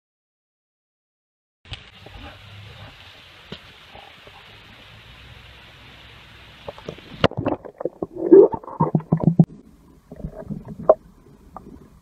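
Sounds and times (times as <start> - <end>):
open-air hiss: 1.7 - 12.0
underwater water gurgling: 6.5 - 12.0.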